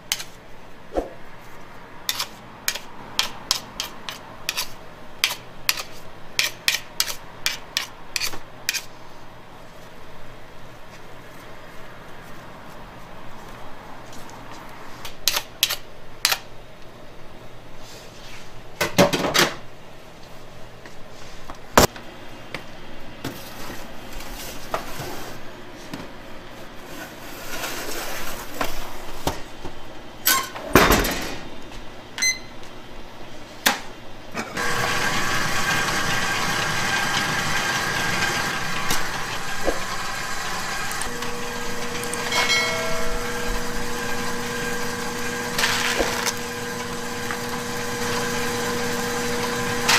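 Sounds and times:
steady machine hum: 34.6 - 49.9.

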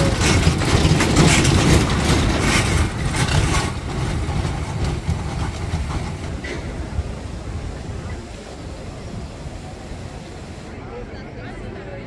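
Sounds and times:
small truck engine running: 0.0 - 10.8.

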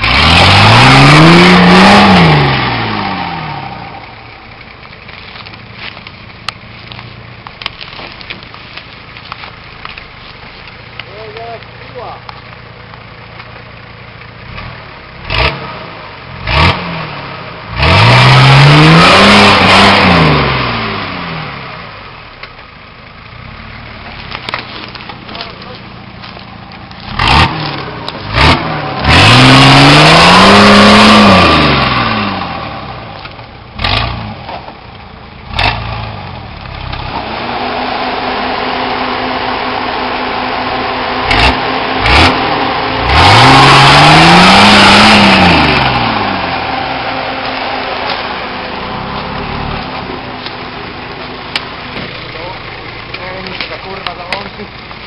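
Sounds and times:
diesel engine revving hard: 0.0 - 4.2, 14.4 - 22.1, 27.0 - 34.6, 35.4 - 55.0.

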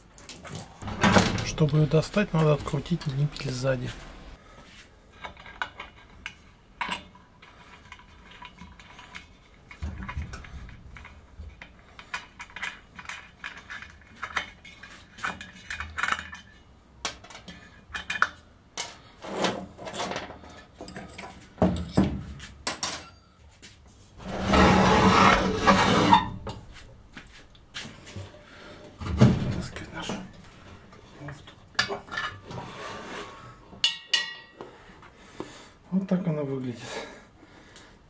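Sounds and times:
metallic clicks and scrapes: 5.2 - 21.4.

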